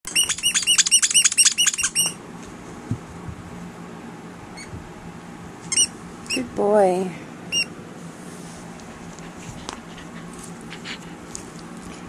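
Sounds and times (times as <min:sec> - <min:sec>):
squeaky dog toy squeaking: 0:00.1 - 0:02.2, 0:05.7 - 0:06.5.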